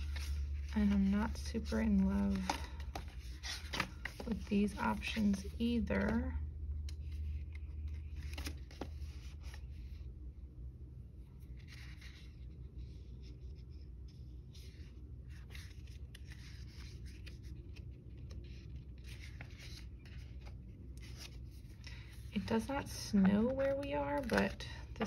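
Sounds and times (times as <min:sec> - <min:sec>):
paper pages rustling: 0:00.0 - 0:10.0, 0:11.4 - 0:25.0
low steady hum: 0:00.0 - 0:25.0.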